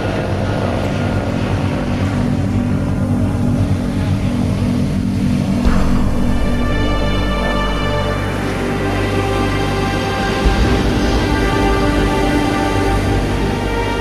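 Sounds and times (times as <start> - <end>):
motor droning: 0.0 - 14.0
heavy surf breaking: 5.6 - 14.0.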